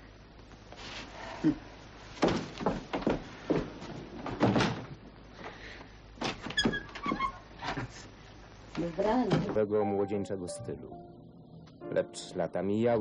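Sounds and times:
wooden door opening and shutting: 4.2s - 4.9s, 6.2s - 7.4s.

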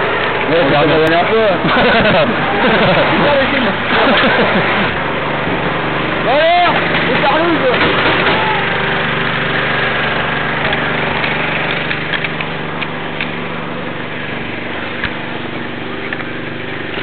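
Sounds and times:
motor humming: 0.0s - 17.0s.

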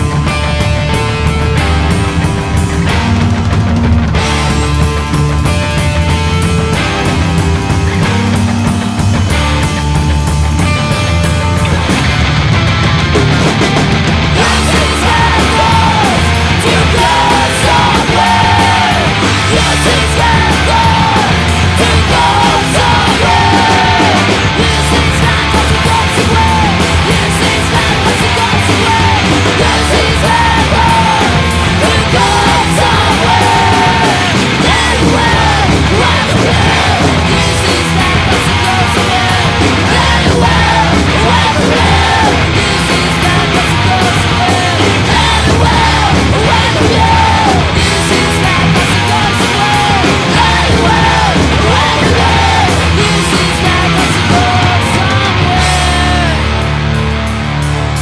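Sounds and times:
bass: 0.0s - 58.0s
distorted electric guitars: 0.0s - 58.0s
drums: 0.0s - 58.0s
shouted vocals: 13.5s - 56.6s.

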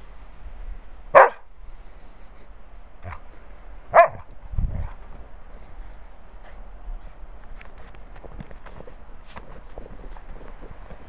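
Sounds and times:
dog barking: 1.1s - 1.5s, 3.9s - 4.3s.

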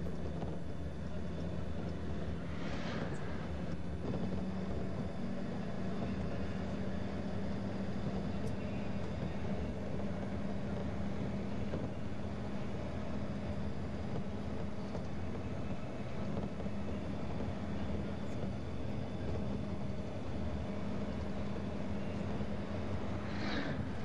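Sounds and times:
vehicle engine drone: 0.0s - 24.0s
road rumble: 1.4s - 24.0s.

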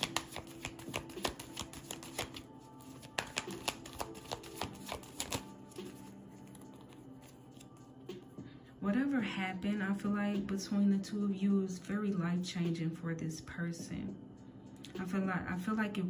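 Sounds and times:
cards being shuffled: 0.0s - 7.8s.

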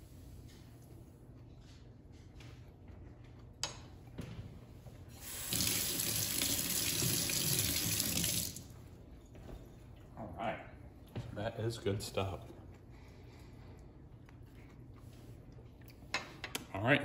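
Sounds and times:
kitchen faucet running: 5.1s - 8.7s.

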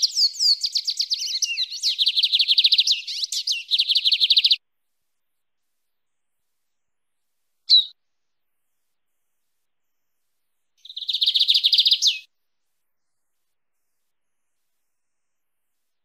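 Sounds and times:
bird singing trill: 0.0s - 4.6s, 7.7s - 8.0s, 10.8s - 12.3s.

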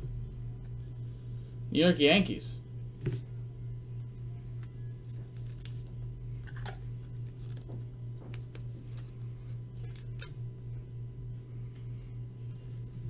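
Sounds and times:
steady low hum: 0.0s - 13.0s
plastic card sleeve crinkling: 4.5s - 10.3s.

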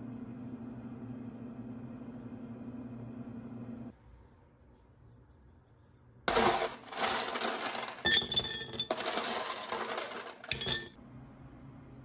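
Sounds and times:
loud dense cooking rush: 6.3s - 8.1s, 8.9s - 10.6s.

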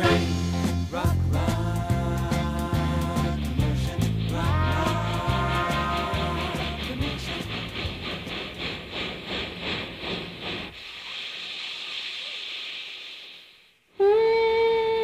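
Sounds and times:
music with a beat: 0.0s - 7.0s
hissing wash: 2.6s - 13.8s.

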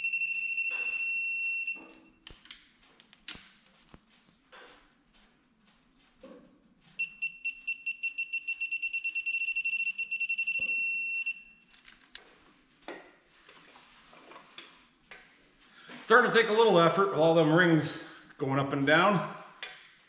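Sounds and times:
torque wrench beeping: 7.0s - 11.7s.

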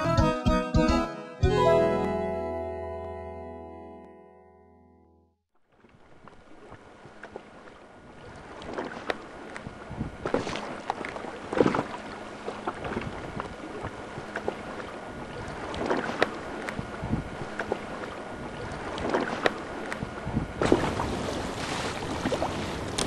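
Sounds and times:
water splashing: 5.7s - 23.0s
wind buffeting microphone: 9.7s - 10.3s, 16.8s - 17.6s, 20.0s - 23.0s.

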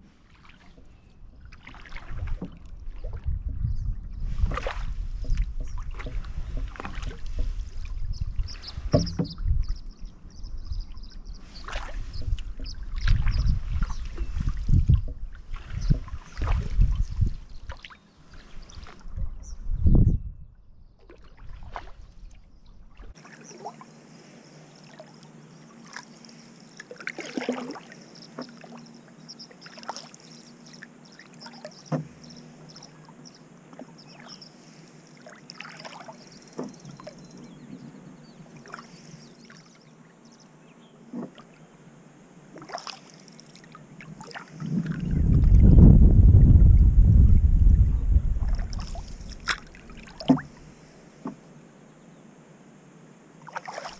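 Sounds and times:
paddle strokes splashing in water: 0.0s - 9.8s, 11.0s - 19.2s, 21.0s - 40.1s, 41.0s - 41.6s, 42.4s - 45.8s, 48.3s - 51.5s, 53.3s - 53.9s
low rumble on microphone: 0.7s - 23.2s, 44.6s - 50.8s.

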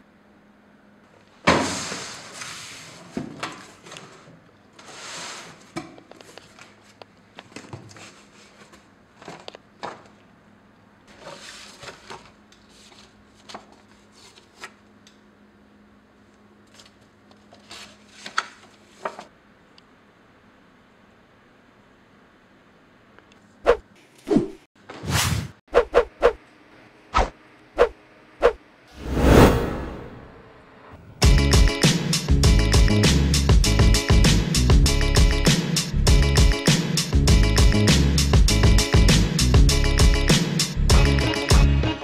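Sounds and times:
paper sheets rustling: 11.1s - 14.8s, 16.6s - 19.3s.

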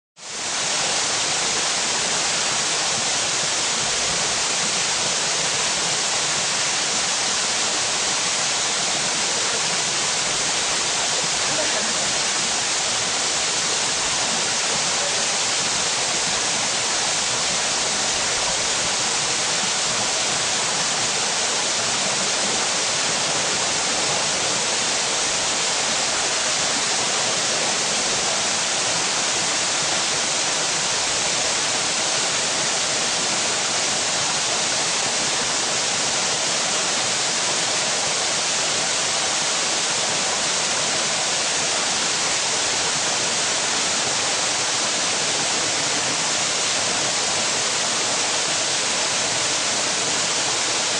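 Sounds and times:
waterfall pouring into a pool: 0.2s - 50.9s.

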